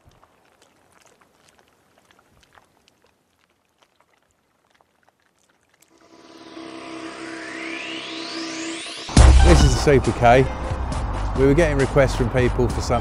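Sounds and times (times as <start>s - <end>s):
electronic music swell: 6.0s - 11.9s.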